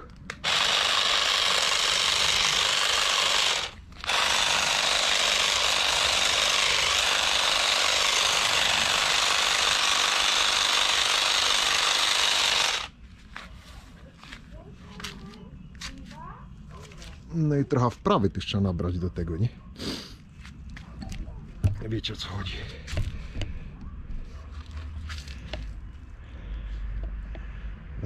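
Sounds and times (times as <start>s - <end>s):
handheld power tool running: 0.0s - 13.0s.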